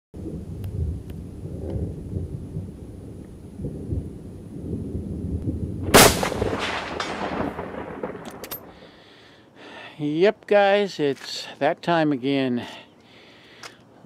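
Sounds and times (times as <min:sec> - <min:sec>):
low rolling rumble: 0:00.2 - 0:08.7
loud sharp crack: 0:05.8 - 0:08.9.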